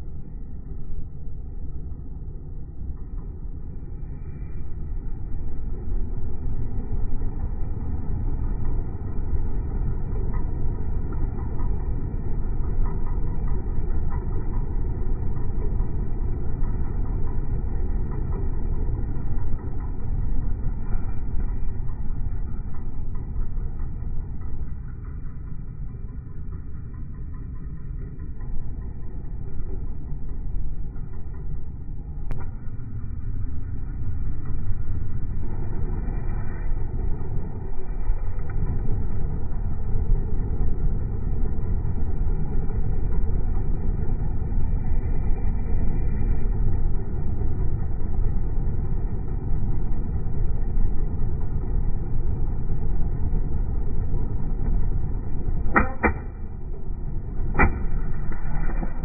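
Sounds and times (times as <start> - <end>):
heater fan rumble: 0.0 - 59.0
sharp clicks: 55.7 - 56.4.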